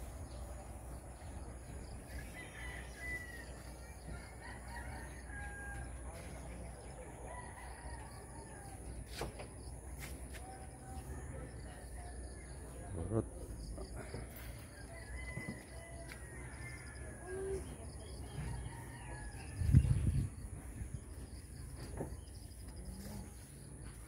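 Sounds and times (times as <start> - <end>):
rooster crowing: 2.1 - 6.3, 7.2 - 8.9, 14.5 - 20.0.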